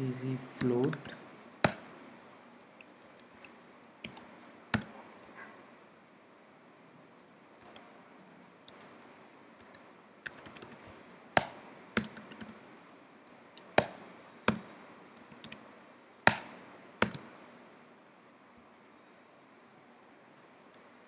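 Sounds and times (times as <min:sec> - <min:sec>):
typing on computer keyboard: 0:03.2 - 0:04.9, 0:09.6 - 0:12.6, 0:15.2 - 0:15.6, 0:17.0 - 0:17.3.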